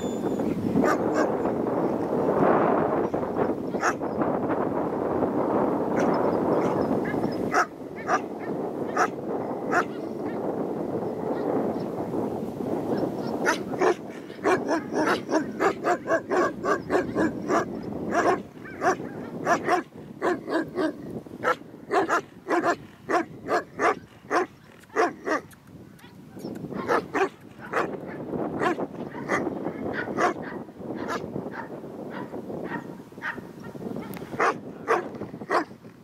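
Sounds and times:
dog barking: 0:00.8 - 0:01.4, 0:03.8 - 0:04.0, 0:06.0 - 0:10.4, 0:13.2 - 0:35.7.

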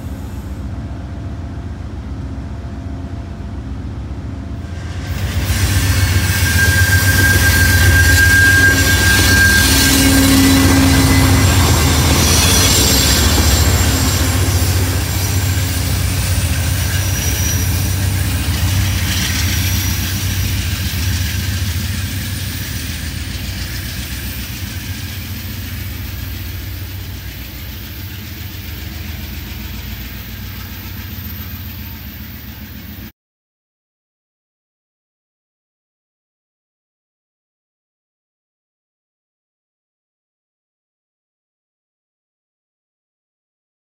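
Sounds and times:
diesel locomotive engine running: 0:00.0 - 0:33.1
train wheels rumbling on rails: 0:00.0 - 0:33.1
high wheel squeal: 0:04.9 - 0:33.1.

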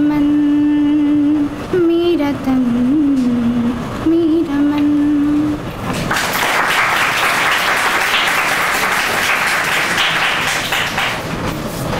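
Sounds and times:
woman singing: 0:00.0 - 0:05.6
audience applause: 0:06.1 - 0:11.4.

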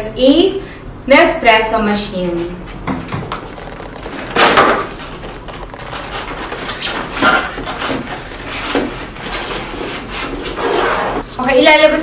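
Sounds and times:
cardboard box flaps scraping: 0:03.2 - 0:11.2.

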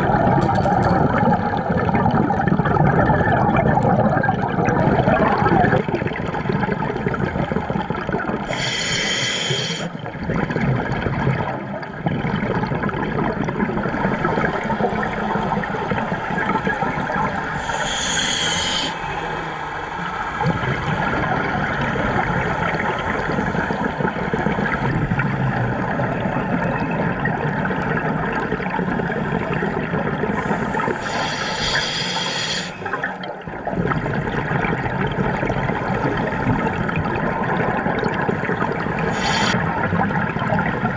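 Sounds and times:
underwater bubbles bursting: 0:00.0 - 0:09.2, 0:09.8 - 0:40.9.

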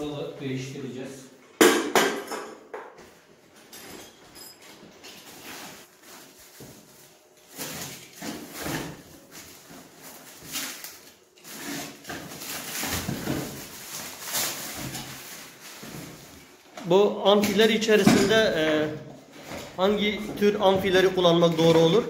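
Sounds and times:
plastic wrapping crinkling and tearing: 0:05.6 - 0:16.7.

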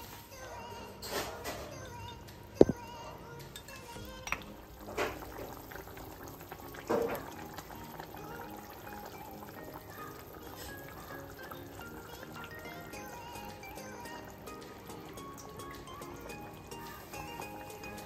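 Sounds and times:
background music: 0:00.0 - 0:18.0
curry bubbling in a pot: 0:04.0 - 0:18.0.

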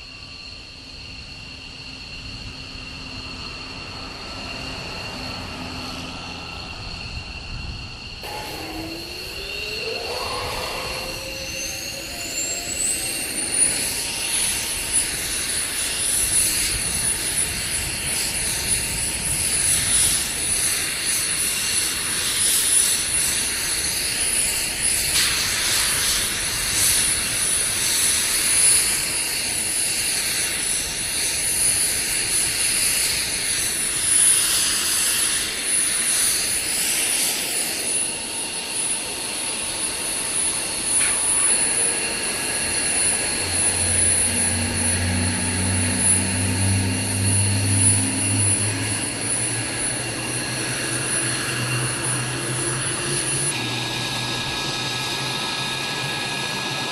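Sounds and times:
jet engine whine: 0:00.0 - 0:56.9
jet noise rush: 0:02.6 - 0:23.0.

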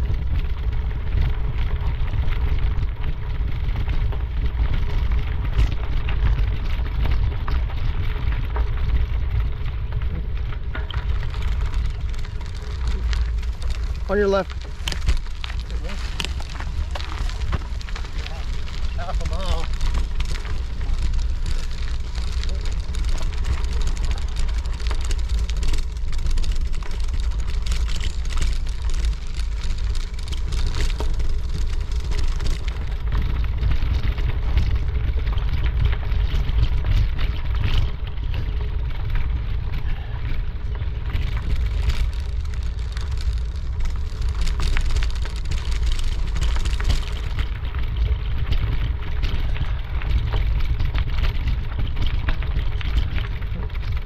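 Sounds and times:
wind rumbling on microphone: 0:00.0 - 0:54.0
footsteps crunching: 0:11.1 - 0:26.2.

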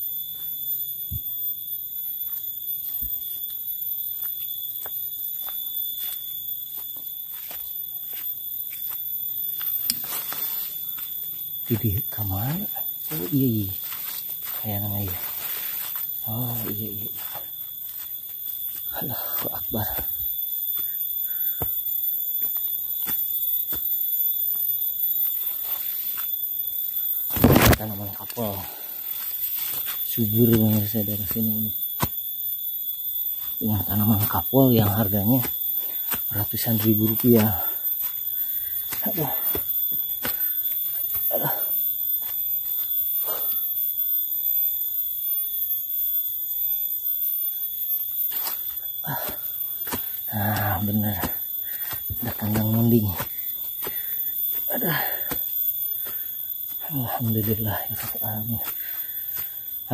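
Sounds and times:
high-pitched insect drone: 0:00.0 - 0:59.9
footsteps crunching on dry leaves: 0:04.2 - 0:12.0, 0:12.8 - 0:20.2, 0:25.3 - 0:26.4, 0:27.3 - 0:32.1, 0:33.4 - 0:41.2, 0:48.3 - 0:54.7, 0:55.4 - 0:59.9.

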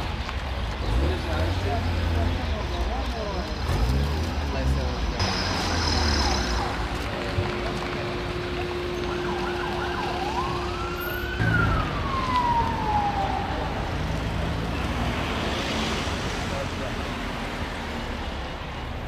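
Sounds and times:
street traffic noise: 0:00.0 - 0:19.0
emergency vehicle siren: 0:05.2 - 0:16.2.

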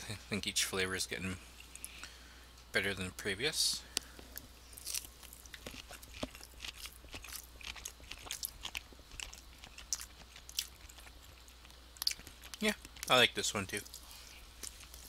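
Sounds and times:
person chewing food: 0:03.9 - 0:13.1, 0:13.8 - 0:15.0.

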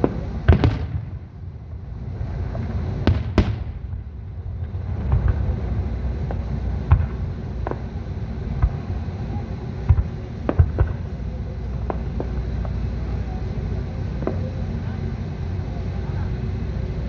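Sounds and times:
firework shells bursting: 0:00.0 - 0:13.1
low rumble: 0:00.0 - 0:17.0.

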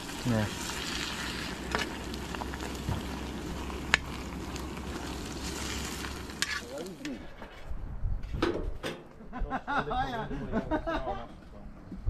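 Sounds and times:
fish sizzling in hot oil: 0:00.0 - 0:07.1
oil popping: 0:00.0 - 0:07.2.

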